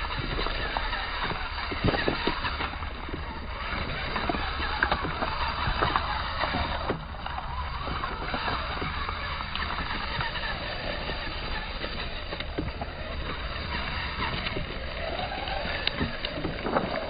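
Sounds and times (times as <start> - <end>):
toy car clattering on rocks: 0.0 - 17.0.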